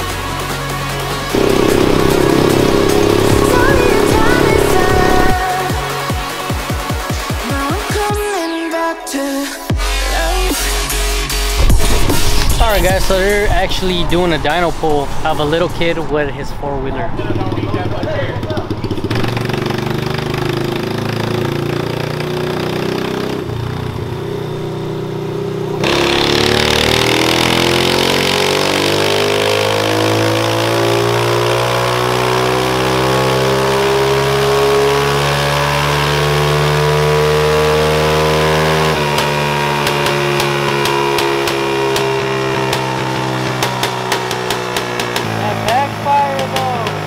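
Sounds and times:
small engine revving: 0:01.3 - 0:06.1, 0:18.5 - 0:47.0
exhaust popping and crackling: 0:01.3 - 0:06.2, 0:17.2 - 0:30.2, 0:38.9 - 0:47.0.

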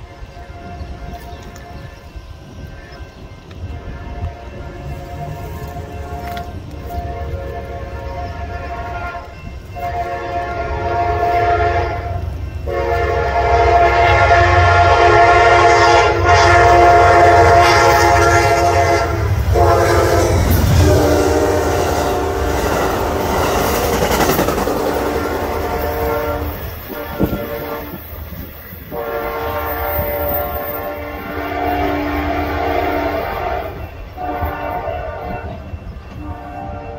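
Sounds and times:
train horn blasts: 0:00.0 - 0:24.2, 0:24.8 - 0:36.9
train cars rushing and clacking: 0:00.0 - 0:36.9.

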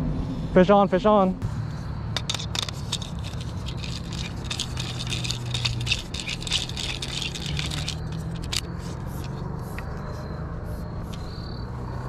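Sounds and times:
fishing reel rattling and clicking: 0:02.2 - 0:09.4.

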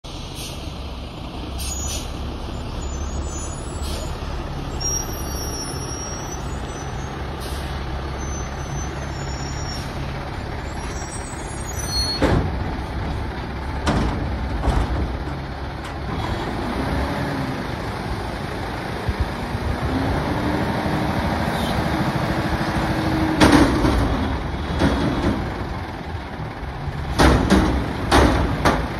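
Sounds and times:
air brake hisses: 0:00.3 - 0:00.7, 0:01.6 - 0:02.2, 0:03.6 - 0:04.2, 0:07.3 - 0:07.8
garbage truck engine running: 0:02.2 - 0:28.9.

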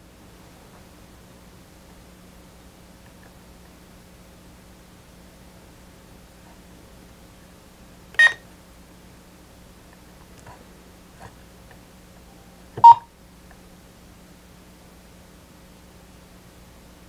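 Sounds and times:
radio key beeps: 0:08.2 - 0:08.4, 0:12.8 - 0:13.0.

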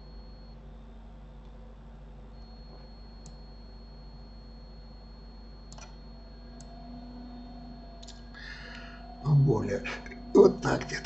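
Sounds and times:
low electrical hum: 0:00.0 - 0:11.0
computer mouse clicks: 0:05.7 - 0:06.0.

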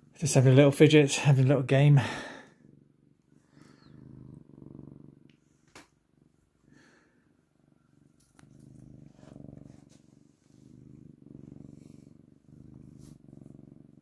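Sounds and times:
cat purring: 0:00.0 - 0:14.0.

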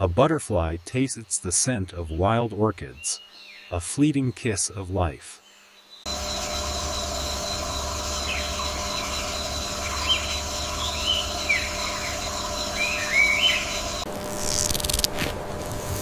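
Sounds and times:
bird chirps: 0:05.4 - 0:14.1.

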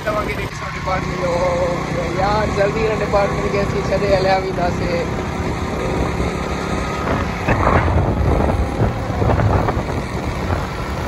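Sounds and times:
road and wind noise: 0:00.0 - 0:11.0
vehicle engine running: 0:00.0 - 0:11.0.

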